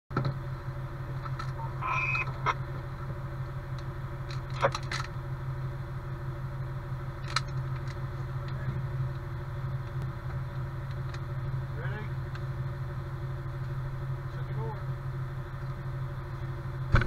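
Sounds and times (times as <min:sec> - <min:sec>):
diesel engine idling: 0:00.2 - 0:17.0.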